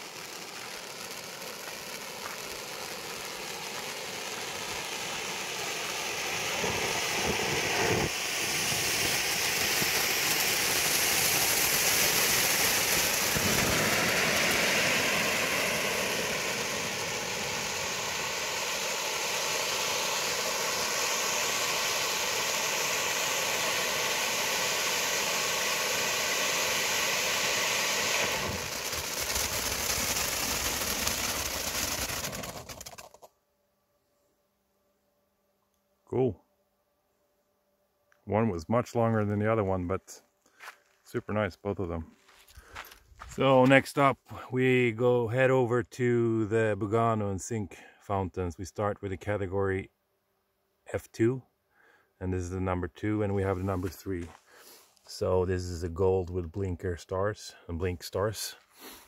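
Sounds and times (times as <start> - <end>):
fireworks fountain rushing hiss: 0.0 - 33.3, 53.4 - 55.8, 57.5 - 59.0.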